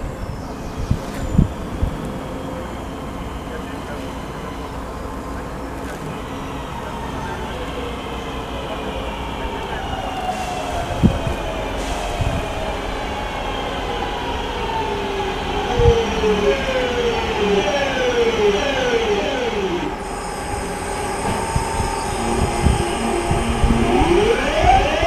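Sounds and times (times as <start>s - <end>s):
wheels rumbling on rail: 0.0s - 25.0s
train motors whining: 10.4s - 25.0s
higher steady whine: 19.7s - 25.0s.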